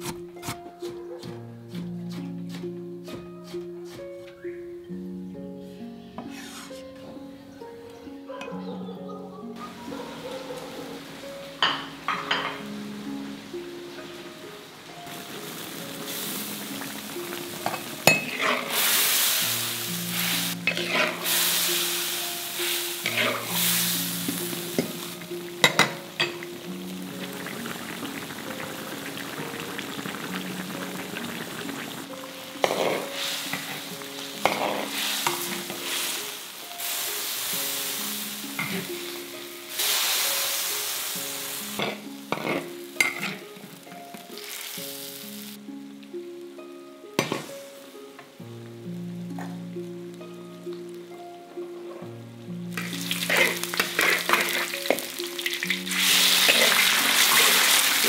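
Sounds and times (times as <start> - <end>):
soft instrumental music: 0.0 - 58.0
metal ladle scraping wok: 6.2 - 7.0, 17.7 - 22.0, 32.6 - 36.4, 41.8 - 43.5, 52.8 - 55.2, 55.9 - 58.0
broth sizzling and bubbling: 10.9 - 45.6, 52.5 - 58.0.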